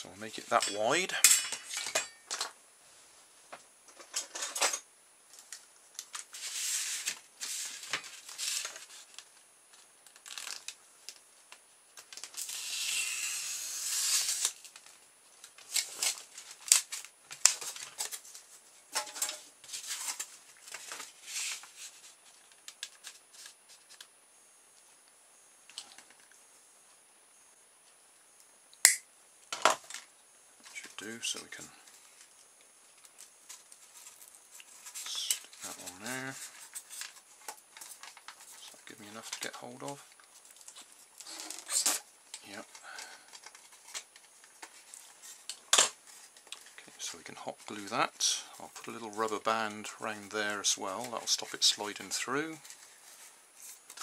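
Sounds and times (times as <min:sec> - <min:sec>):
sharp click: 0:28.8 - 0:29.0.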